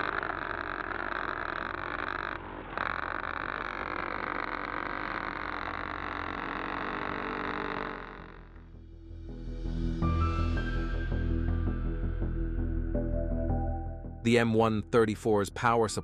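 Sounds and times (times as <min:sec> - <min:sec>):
minigun firing continuous burst: 0:00.0 - 0:08.4.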